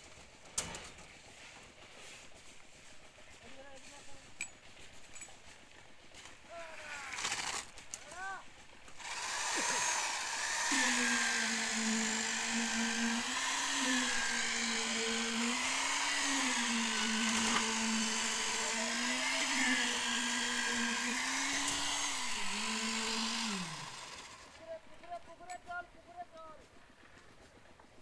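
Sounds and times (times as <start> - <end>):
concrete vibrator motor humming: 9.0 - 24.8.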